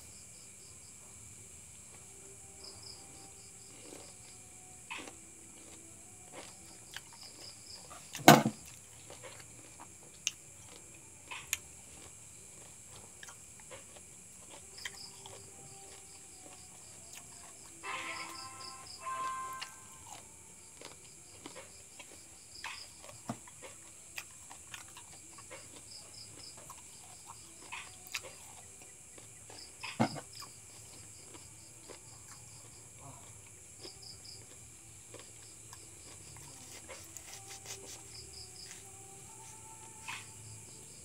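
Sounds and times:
crickets chirping: 0.0 - 41.0
insects droning: 0.0 - 41.0
knife cutting a lemon: 36.4 - 39.4.

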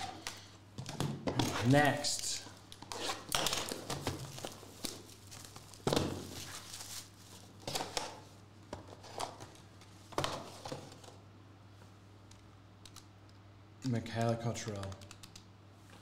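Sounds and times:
plastic wrap crinkling and tearing: 3.0 - 8.0.

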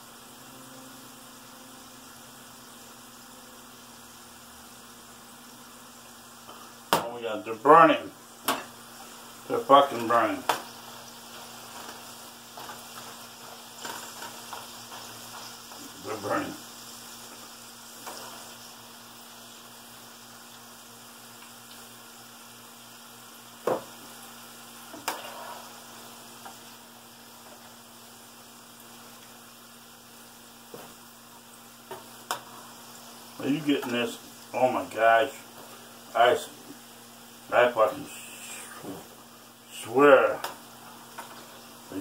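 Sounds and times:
food sizzling in a frying pan: 0.0 - 42.0
person speaking: 9.4 - 10.5, 15.8 - 16.6, 33.4 - 35.5, 36.1 - 36.7, 37.5 - 39.1, 39.7 - 40.5.

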